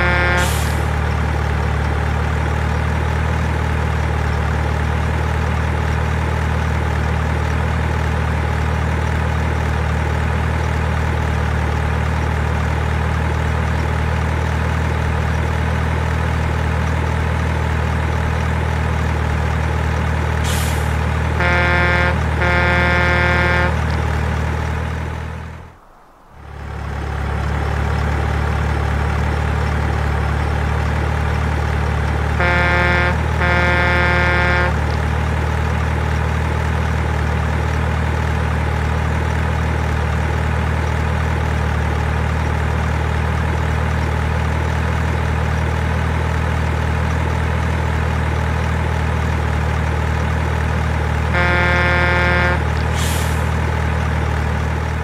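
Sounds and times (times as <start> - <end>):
truck horn blasts: 0.0 - 0.9, 21.2 - 24.9, 32.3 - 35.0, 51.3 - 53.5
truck engine rumble: 0.0 - 55.0
short air hiss: 52.9 - 53.6.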